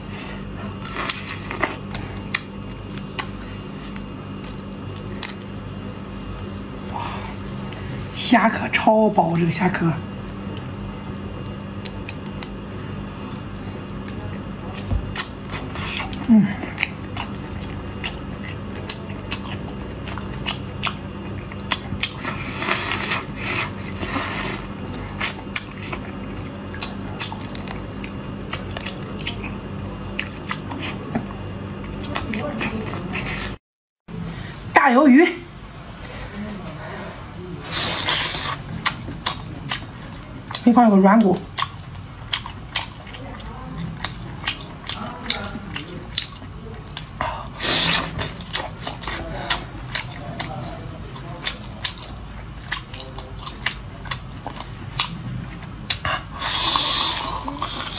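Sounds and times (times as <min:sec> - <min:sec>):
steady low hum: 0:00.0 - 0:57.9.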